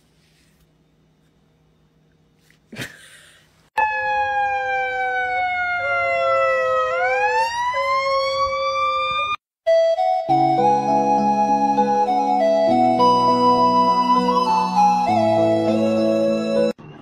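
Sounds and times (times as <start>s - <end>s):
emergency vehicle siren wailing: 3.8s - 17.0s.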